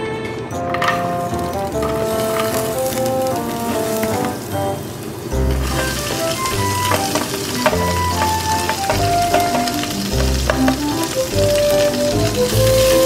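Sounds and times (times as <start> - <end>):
vegetables sizzling in oil: 1.1 - 13.0
background music with bass line: 5.4 - 13.0.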